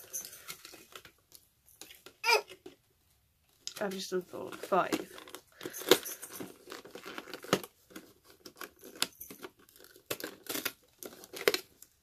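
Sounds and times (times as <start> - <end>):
cardboard tearing and crackling: 4.6 - 12.0.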